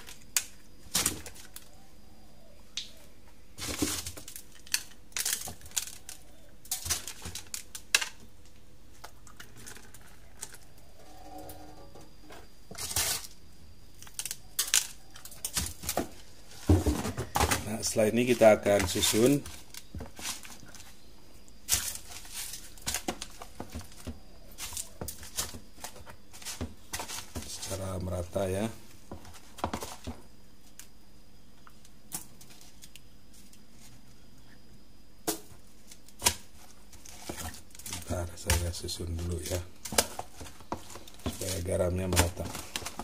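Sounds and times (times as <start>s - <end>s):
fish scraping and tapping in salt: 36.2s - 38.7s.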